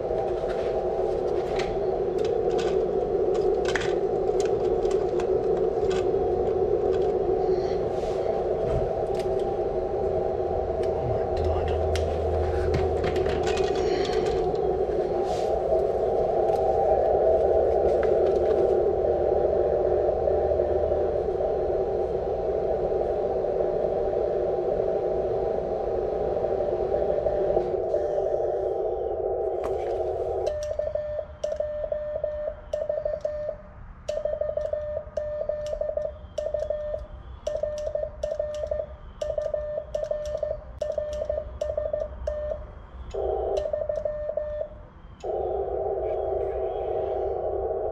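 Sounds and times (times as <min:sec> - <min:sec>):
radio receiver hiss: 0:00.0 - 0:31.7, 0:40.8 - 0:47.9
morse code beeps: 0:30.3 - 0:46.5.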